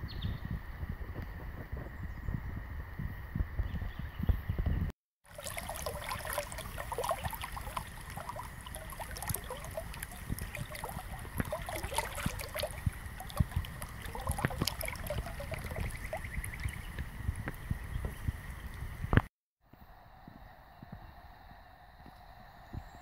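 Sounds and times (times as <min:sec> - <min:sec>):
river water trickling and gurgling: 0:05.2 - 0:20.1.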